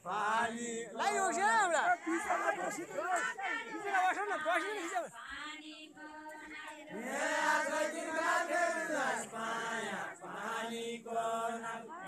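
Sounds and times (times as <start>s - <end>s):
men singing in unison: 0.0s - 3.2s, 6.9s - 12.0s.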